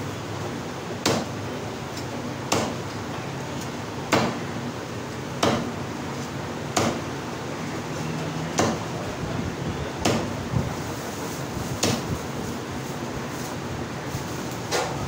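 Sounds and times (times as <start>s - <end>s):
meat cleaver chopping on wooden block: 6.8s - 7.0s.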